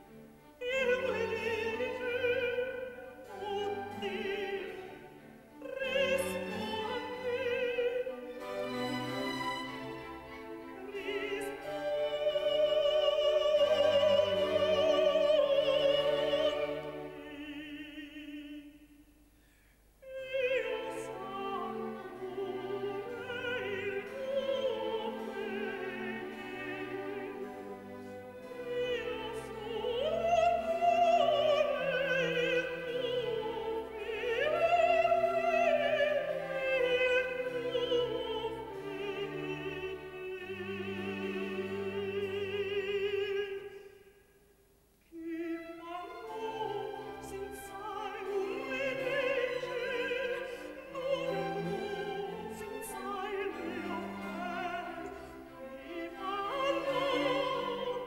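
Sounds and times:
orchestral accompaniment: 0:00.0 - 0:18.3, 0:20.2 - 0:43.6, 0:45.2 - 0:58.0
countertenor singing opera: 0:00.0 - 0:44.2, 0:45.1 - 0:58.0.

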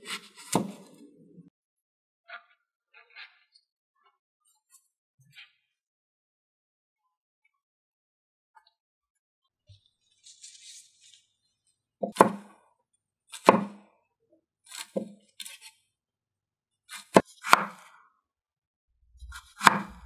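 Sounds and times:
cleaver chopping on wooden board: 0:00.1 - 0:00.9, 0:12.0 - 0:12.5, 0:13.4 - 0:13.9, 0:16.9 - 0:17.8, 0:19.3 - 0:20.0.

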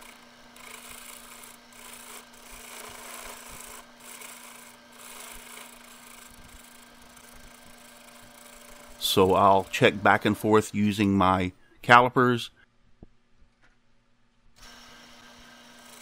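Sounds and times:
turning tool scraping wood: 0:00.0 - 0:11.1, 0:14.6 - 0:16.0
lathe humming: 0:00.0 - 0:11.6, 0:14.6 - 0:16.0.

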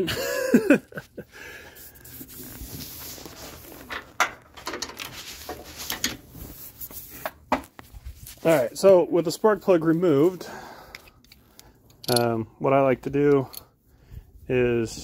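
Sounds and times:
brushing against microphone: 0:01.6 - 0:03.9, 0:05.1 - 0:10.4.

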